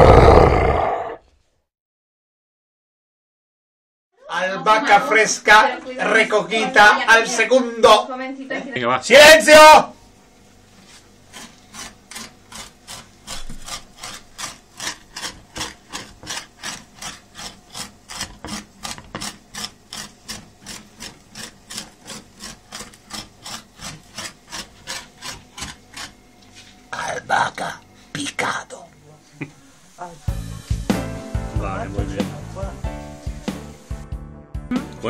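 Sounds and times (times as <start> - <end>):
knife chopping on wooden board: 11.3 - 26.1.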